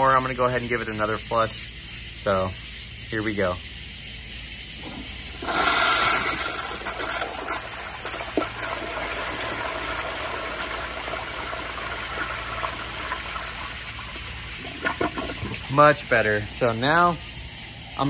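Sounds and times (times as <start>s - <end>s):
toilet flushing: 4.8s - 16.3s.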